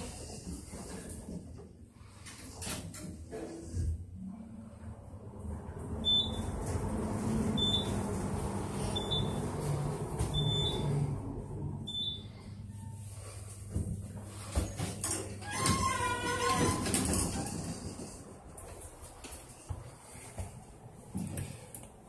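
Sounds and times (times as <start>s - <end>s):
elevator car hum and rumble: 0.0s - 21.6s
elevator short high beeps: 6.0s - 6.5s, 7.6s - 8.0s, 8.9s - 9.5s, 10.3s - 11.0s, 11.8s - 13.0s.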